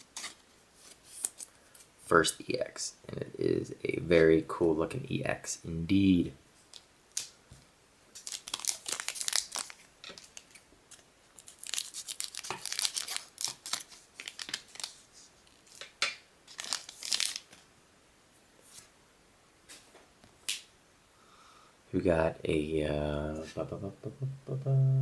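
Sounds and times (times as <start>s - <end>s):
foil wrapper tearing and crinkling: 8.2s - 15.9s, 16.5s - 17.6s.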